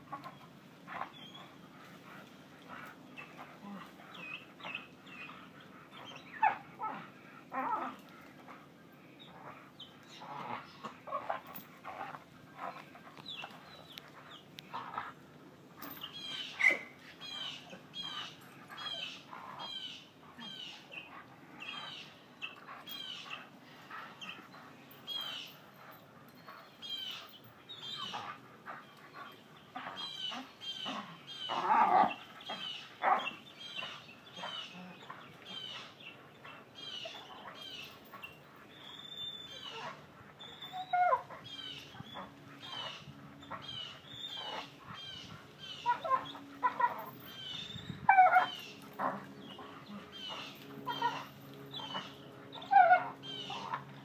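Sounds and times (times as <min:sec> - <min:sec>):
chain clinking and rattling: 0:10.2 - 0:15.1, 0:15.7 - 0:16.6, 0:22.6 - 0:30.0, 0:45.8 - 0:52.2.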